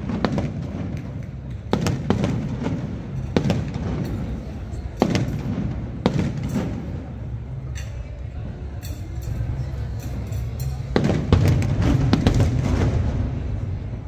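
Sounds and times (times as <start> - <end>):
fireworks bangs: 0.0 - 7.3, 10.9 - 14.0
crowd chatter: 0.0 - 14.0.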